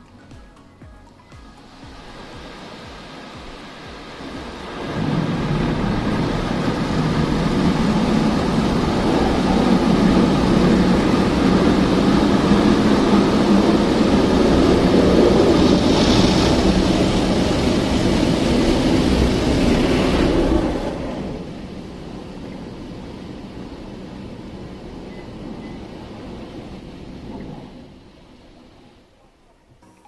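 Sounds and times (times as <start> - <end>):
car wash machine hum: 0.0 - 30.0
water spraying on windshield: 1.6 - 22.1.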